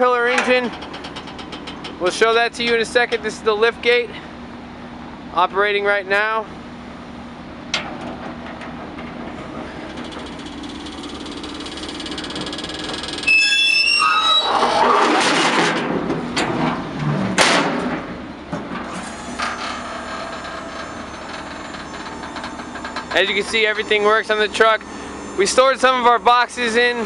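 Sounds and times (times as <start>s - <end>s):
metal clatter and clanks: 0.2s - 3.2s, 7.7s - 13.3s, 14.8s - 23.7s
hydraulic lift humming: 6.6s - 14.8s, 18.2s - 27.0s
metal squealing: 9.8s - 15.2s, 19.0s - 27.0s.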